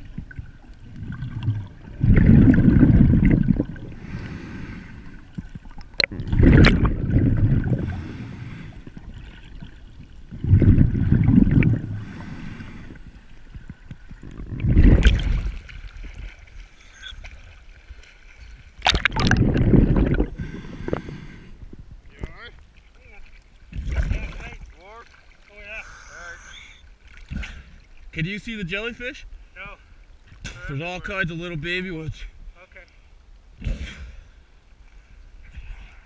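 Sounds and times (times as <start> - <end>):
muffled water rushing underwater: 0.0 - 25.5
water gurgling: 0.0 - 28.7.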